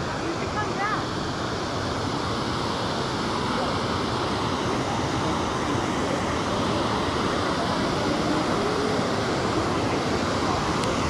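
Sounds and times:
waterfall rushing over rocks: 0.0 - 11.0.

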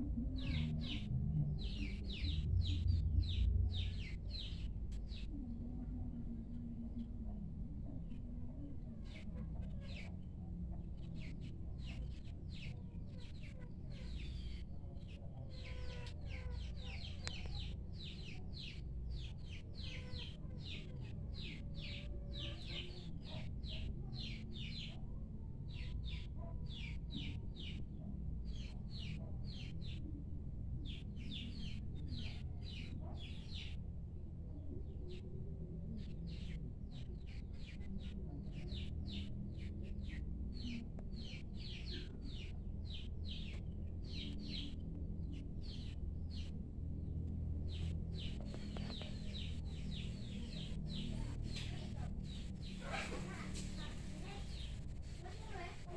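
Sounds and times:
low rumble: 0.0 - 9.4
small bird chirping: 37.2 - 55.9.

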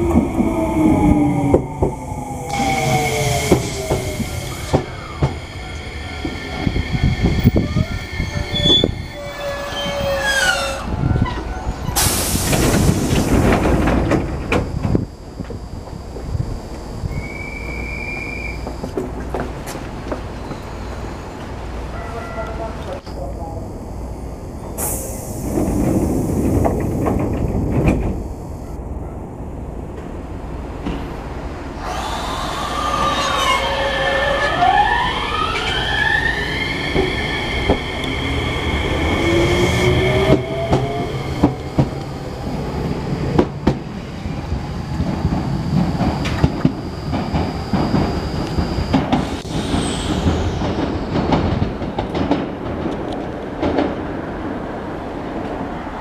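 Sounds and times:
electric train motor whine: 0.0 - 11.1, 11.7 - 19.1, 31.7 - 51.8
high wheel squeal: 2.5 - 12.2, 17.1 - 18.8, 31.8 - 51.7.

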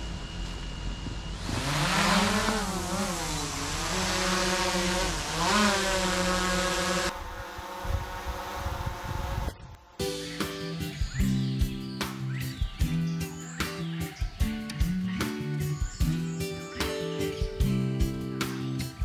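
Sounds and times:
high motor whine: 0.0 - 10.1
drone propellers buzzing hum: 0.0 - 11.8.

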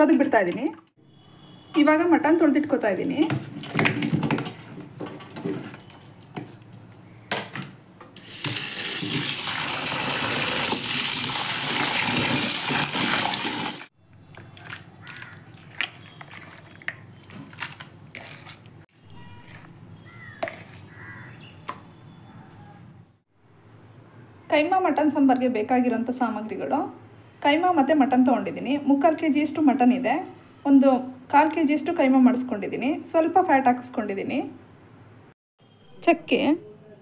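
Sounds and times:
handling knocks and clicks: 3.2 - 8.2
tap water running into a bowl: 8.2 - 17.0.

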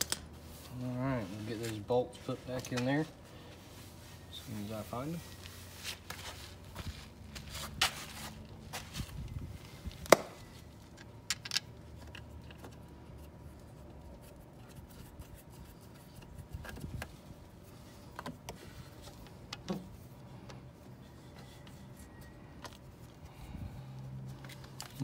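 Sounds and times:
clicks of handling hose and plastic: 18.1 - 20.6, 24.3 - 25.0.

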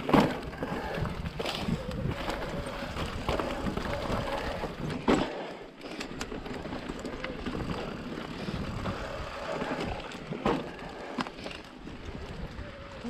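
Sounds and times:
bike tyres on rough trail: 0.0 - 13.0
wind on microphone: 0.4 - 5.0, 7.4 - 10.2.

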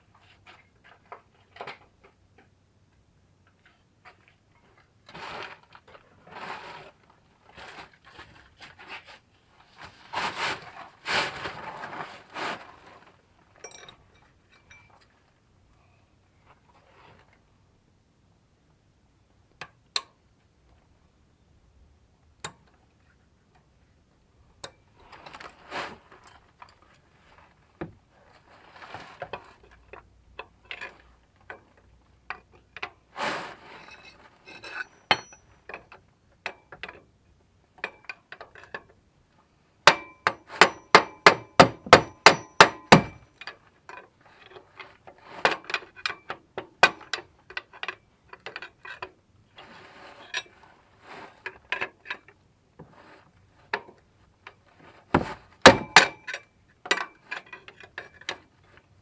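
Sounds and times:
metal scraping: 33.2 - 35.4
hammer striking steel bar: 35.1 - 35.4, 39.9 - 43.2, 55.7 - 56.3.

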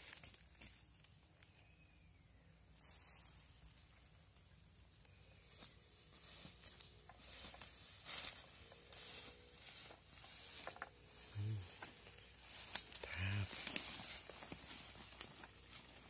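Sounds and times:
leaves and branches rustling: 0.0 - 1.6, 2.6 - 16.0
low voice-like sound: 11.3 - 11.8, 13.0 - 13.6
twigs snapping: 12.6 - 16.0.

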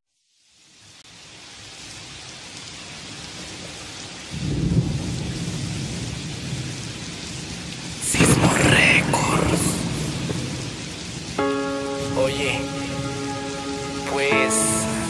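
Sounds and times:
steady rain: 0.1 - 15.0
low rumble of thunder: 4.3 - 11.4.

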